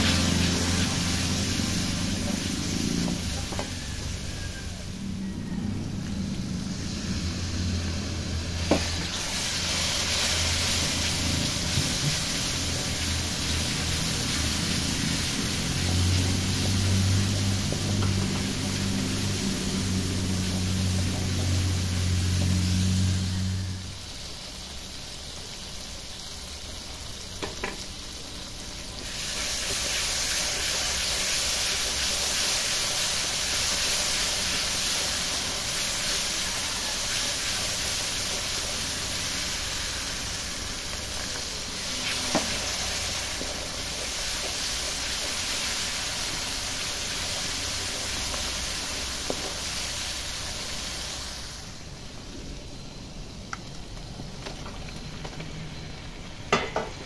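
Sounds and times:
food sizzling in a wok: 0.0 - 57.0
spatula knocking pan: 56.5 - 57.0.

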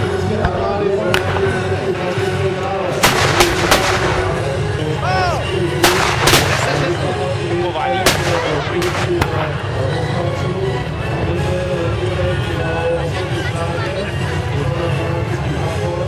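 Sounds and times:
musket shots: 3.0 - 4.4, 5.8 - 7.0, 8.0 - 9.5.

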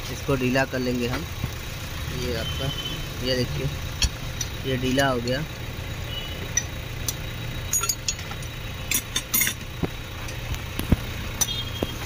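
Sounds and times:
spanner clinking on metal parts: 7.7 - 10.4.

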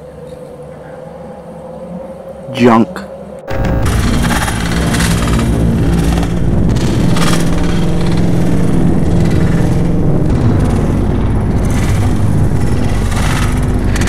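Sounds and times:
low droning rumble: 3.5 - 14.0
sharp hiss-like hit: 3.5 - 14.0.

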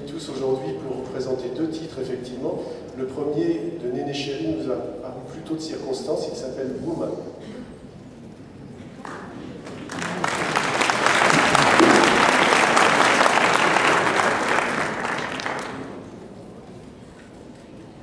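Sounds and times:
audience applauding: 9.0 - 16.2.

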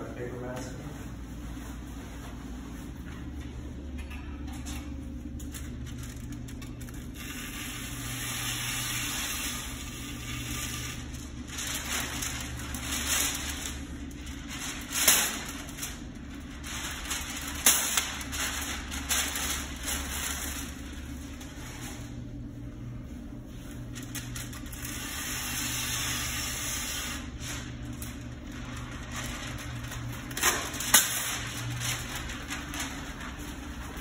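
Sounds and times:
steady low hum: 0.0 - 34.0
masking paper crinkling: 4.9 - 34.0
paper ripping: 8.8 - 21.6, 23.9 - 34.0.

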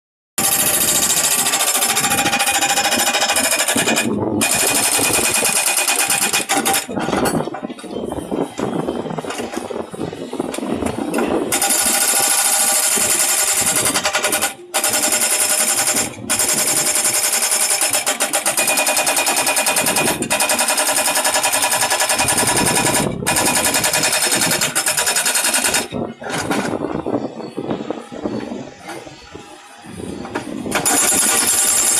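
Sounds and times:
hydraulic breaker hammering concrete: 0.4 - 7.6, 10.5 - 26.9, 30.2 - 31.9.

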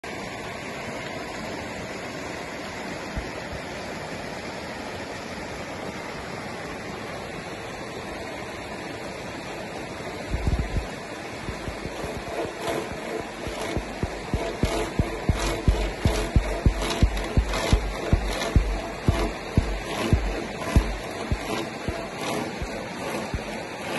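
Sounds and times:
stream rushing over rocks: 0.1 - 23.9
low dull thumps: 10.4 - 10.9, 11.5 - 23.6.

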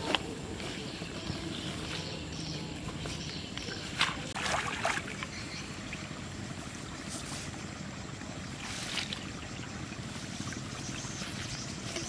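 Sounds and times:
fish traps rustling in grass: 8.6 - 12.0.

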